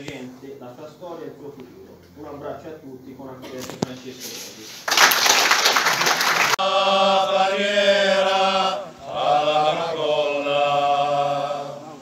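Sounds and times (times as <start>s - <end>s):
applause: 4.8s - 6.6s
men singing together: 6.6s - 12.0s.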